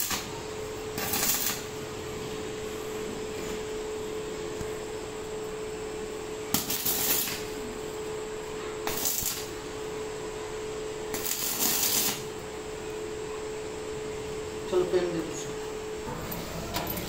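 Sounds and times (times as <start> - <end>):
welding arc crackling: 0.0 - 1.8, 6.5 - 7.6, 8.8 - 9.6, 11.1 - 12.4
steady hum: 0.0 - 17.0.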